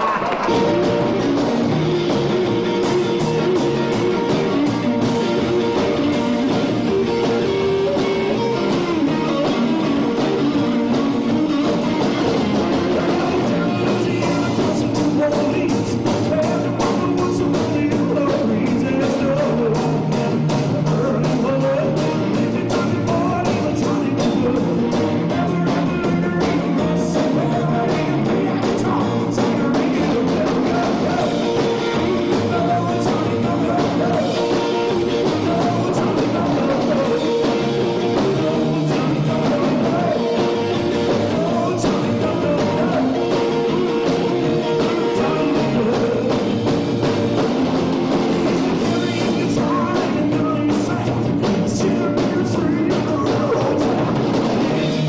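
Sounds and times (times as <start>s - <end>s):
drum kit beat: 0.0s - 55.0s
electric guitar: 0.0s - 55.0s
rock band playing: 0.0s - 55.0s.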